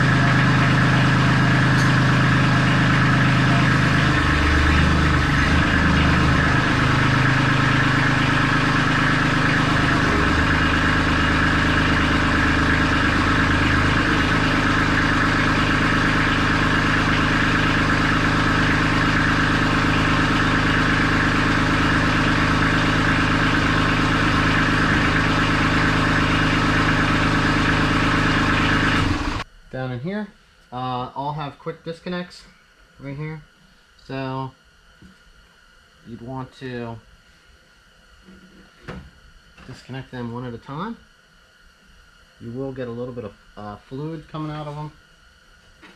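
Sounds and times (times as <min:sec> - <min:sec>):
loader hydraulics working: 0:00.0 - 0:29.4
tractor diesel engine running: 0:00.0 - 0:29.4.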